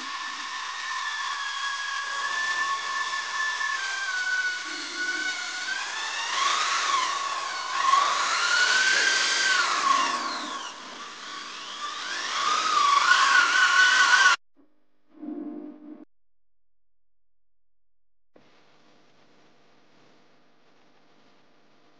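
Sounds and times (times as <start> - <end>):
electric drill scrub brush whining: 0.0 - 14.4.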